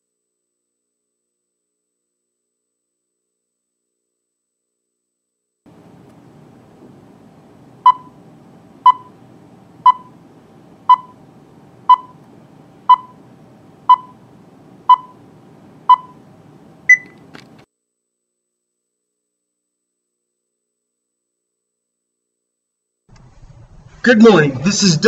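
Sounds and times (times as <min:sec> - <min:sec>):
countdown beeps: 0:07.9 - 0:08.1, 0:08.9 - 0:09.1, 0:09.9 - 0:10.1, 0:10.9 - 0:11.2, 0:11.9 - 0:12.2, 0:12.9 - 0:13.2, 0:13.9 - 0:14.2, 0:14.9 - 0:15.2, 0:15.9 - 0:16.2, 0:16.9 - 0:17.1.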